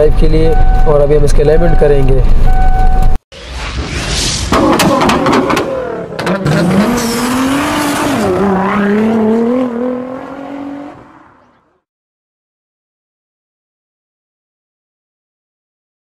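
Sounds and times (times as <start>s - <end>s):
car engine revving: 4.5s - 11.6s.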